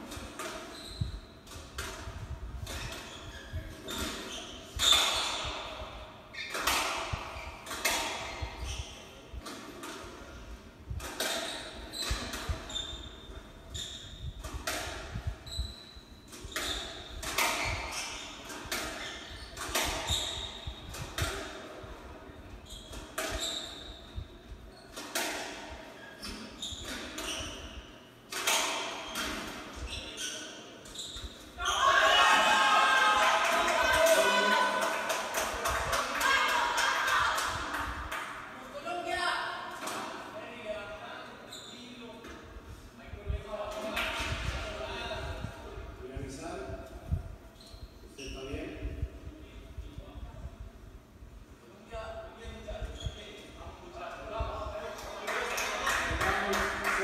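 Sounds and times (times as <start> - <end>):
shoe squeaks on wooden floor: 0.3 - 9.5, 11.2 - 21.3, 22.6 - 25.2, 25.9 - 32.0, 41.4 - 42.1, 47.5 - 49.0.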